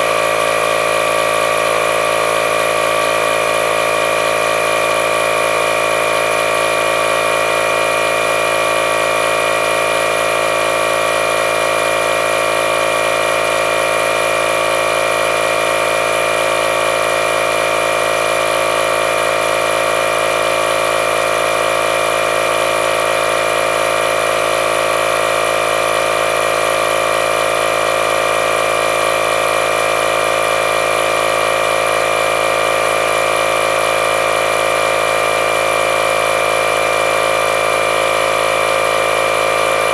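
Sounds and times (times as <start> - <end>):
tire inflator compressor running: 0.0 - 39.9.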